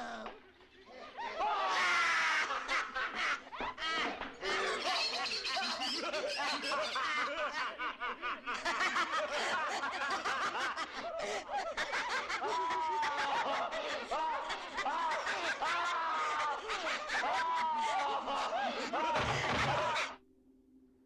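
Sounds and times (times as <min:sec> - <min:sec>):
people laughing maniacally: 0:00.0 - 0:20.2.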